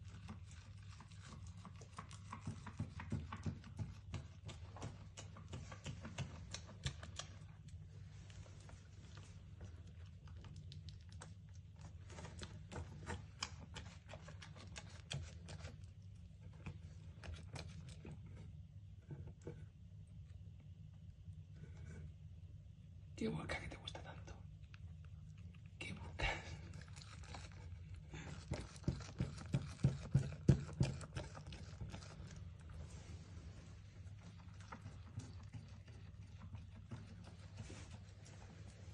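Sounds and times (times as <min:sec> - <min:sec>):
goat chewing grass: 0:00.0 - 0:18.3, 0:26.4 - 0:38.9.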